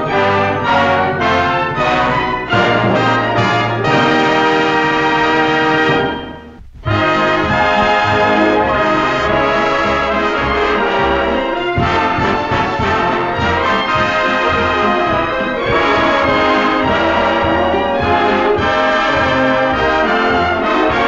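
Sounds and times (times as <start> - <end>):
orchestral music with brass: 0.0 - 21.0.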